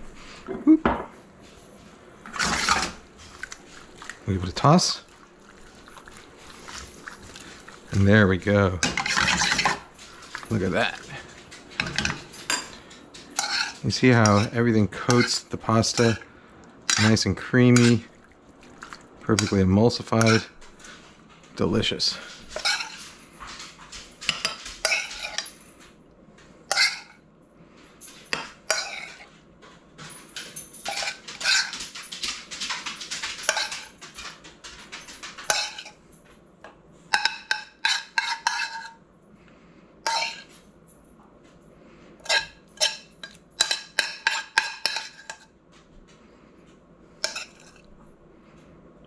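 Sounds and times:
metal spoon scraping skillet: 2.3 - 3.0, 8.8 - 11.0, 13.4 - 16.2, 16.9 - 18.1, 19.3 - 20.5, 22.5 - 23.1, 24.3 - 25.5, 26.7 - 27.2, 28.3 - 29.3, 30.8 - 31.8, 33.5 - 33.9, 35.5 - 36.0, 37.1 - 39.0, 40.0 - 40.5, 42.2 - 45.5, 47.2 - 47.9.

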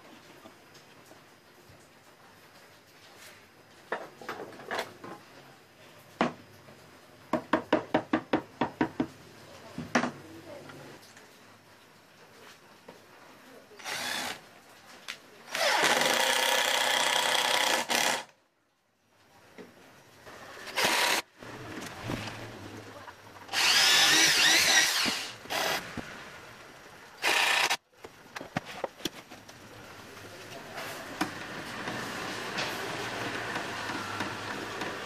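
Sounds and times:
electric drill whining: 13.8 - 14.4, 15.5 - 18.3, 20.6 - 21.3, 23.5 - 25.9, 27.2 - 27.8.

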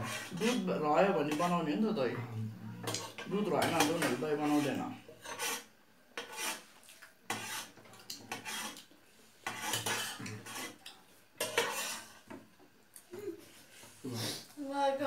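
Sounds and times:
spoons scraping metal plates: 0.0 - 1.6, 2.8 - 6.7, 7.3 - 12.3.

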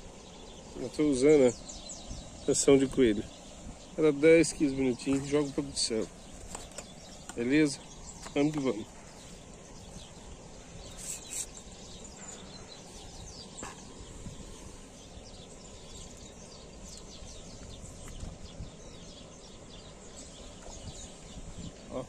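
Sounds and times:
birds chirping: 0.0 - 22.0
low rumble of wind: 0.0 - 22.0.

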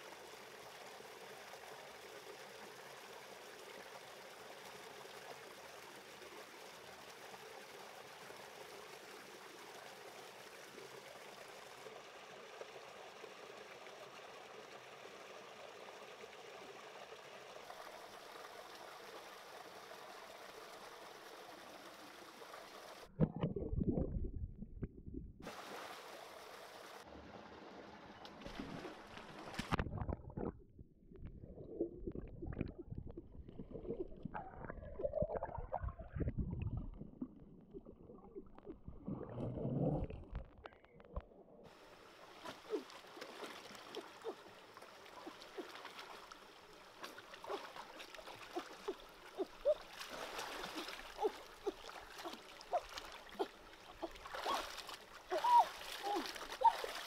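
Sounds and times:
stream rushing: 25.5 - 27.1, 41.8 - 57.0
water sloshing and splashing: 28.3 - 30.6, 31.2 - 57.0.

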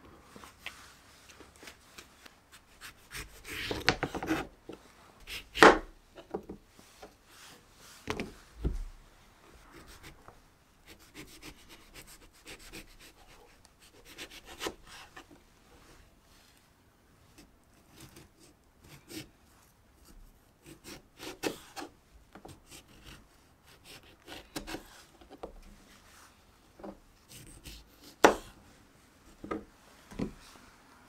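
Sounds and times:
knife cutting thick peel: 2.6 - 4.5, 17.4 - 19.3, 20.6 - 21.9, 22.7 - 25.1
knife scraping peel: 22.7 - 25.2.

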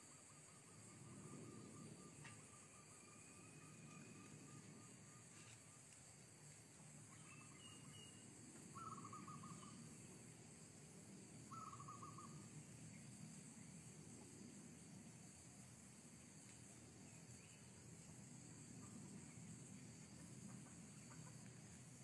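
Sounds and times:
faint bird chirps: 0.1 - 6.0, 7.0 - 9.9, 11.5 - 13.0.

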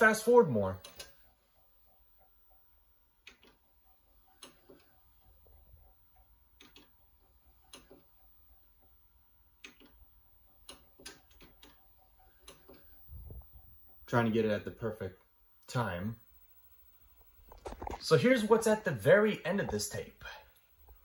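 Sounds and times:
faint irregular clicks: 0.8 - 14.2.

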